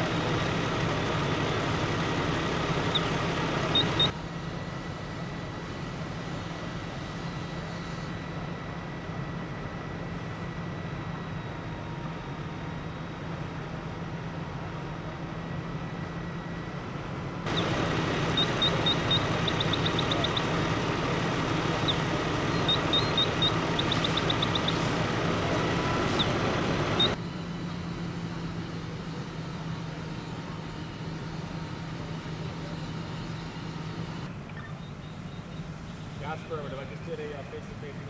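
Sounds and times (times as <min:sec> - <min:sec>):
engine humming: 0:00.0 - 0:38.0
short high chirps: 0:17.5 - 0:20.6, 0:21.7 - 0:24.9
fire hose spraying water: 0:17.6 - 0:27.1.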